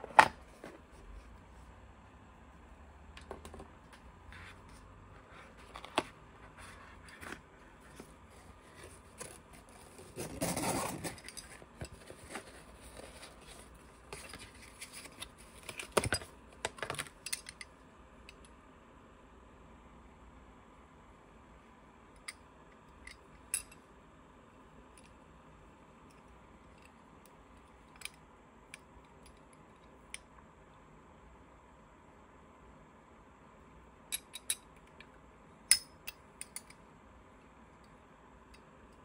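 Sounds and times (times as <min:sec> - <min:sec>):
rustling scrape: 0:04.3 - 0:15.6
medal and box clicks and scrapes: 0:04.3 - 0:17.5.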